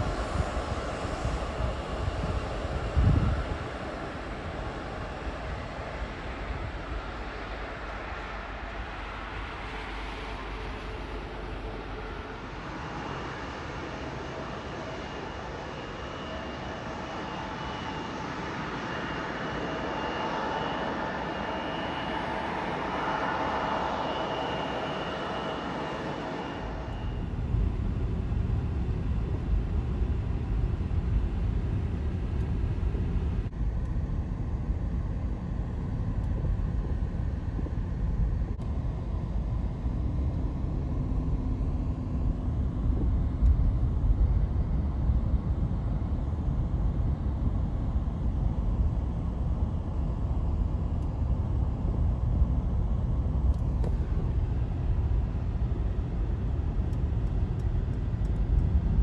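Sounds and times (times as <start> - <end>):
jet engines rumbling: 0.0 - 48.7, 49.5 - 59.0
faint hum: 0.0 - 59.0.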